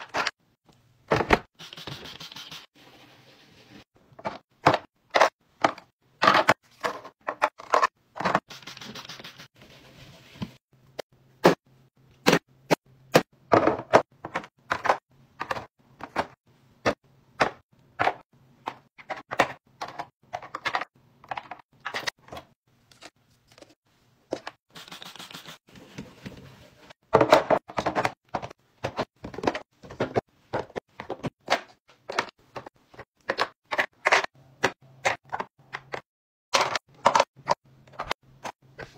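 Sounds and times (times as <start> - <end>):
plastic containers clicking and knocking: 4.1 - 8.4, 13.1 - 22.5, 27.0 - 38.6.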